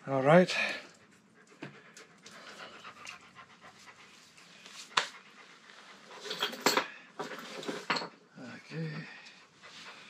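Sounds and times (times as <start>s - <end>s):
dog panting: 0.5s - 6.8s, 8.6s - 10.0s.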